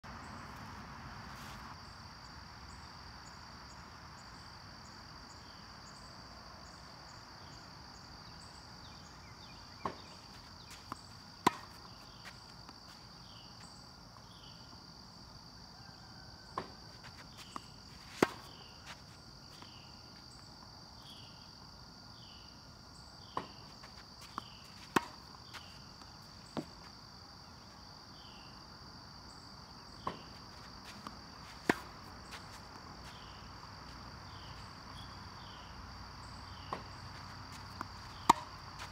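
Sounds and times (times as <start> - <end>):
insects droning and chirping: 0.0 - 38.9
tennis ball bouncing: 9.8 - 13.2, 16.5 - 19.8, 23.4 - 27.0, 30.0 - 33.2, 36.7 - 38.9
racket hitting ball: 10.7 - 12.7, 16.6 - 18.7, 23.4 - 26.9, 30.0 - 32.6, 37.5 - 38.9.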